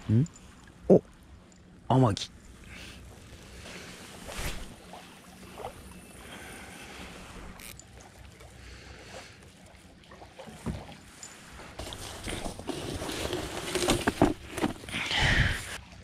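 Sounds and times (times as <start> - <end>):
water lapping at shoreline: 0.0 - 16.0
soft knocks and rustles of handling: 10.4 - 14.9.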